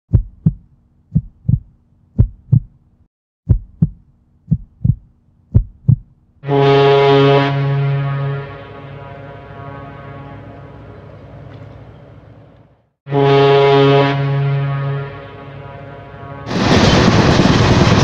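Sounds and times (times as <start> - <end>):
heartbeat-like double thump: 0.1 - 2.8, 3.4 - 6.1.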